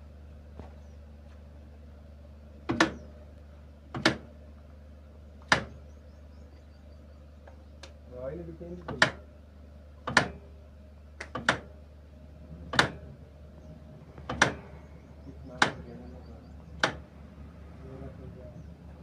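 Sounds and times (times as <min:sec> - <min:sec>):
steady low hum: 0:00.0 - 0:19.0
loud sharp knocks: 0:02.7 - 0:03.0, 0:04.0 - 0:04.3, 0:05.5 - 0:05.8, 0:10.1 - 0:10.4, 0:11.2 - 0:11.7, 0:12.7 - 0:13.1, 0:14.1 - 0:14.8, 0:15.6 - 0:15.9, 0:16.8 - 0:17.1.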